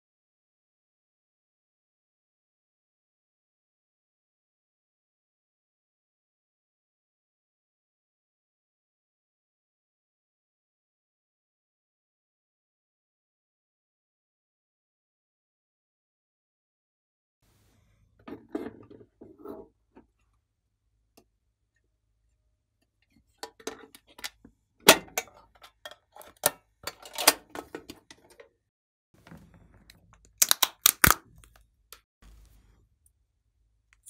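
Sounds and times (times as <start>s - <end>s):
plastic containers rubbing and knocking: 17.5s - 20.2s
plastic lids clicking and snapping: 29.9s - 31.6s.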